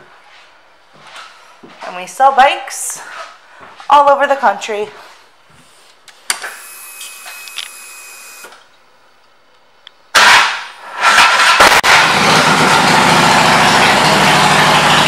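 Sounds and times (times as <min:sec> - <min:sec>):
fuel pump whine: 0:06.4 - 0:08.6, 0:10.8 - 0:15.0
motorcycle engine running: 0:11.4 - 0:15.0.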